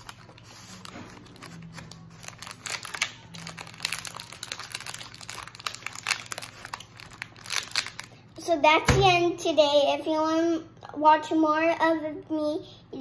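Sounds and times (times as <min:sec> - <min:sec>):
candy packaging crinkling: 0:00.0 - 0:08.4.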